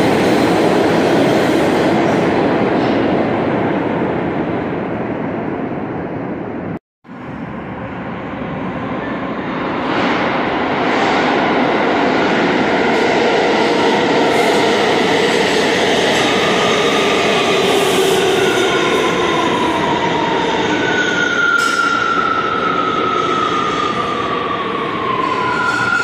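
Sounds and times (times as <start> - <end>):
subway train rumbling: 0.0 - 26.0
high squeal sliding down: 17.8 - 26.0.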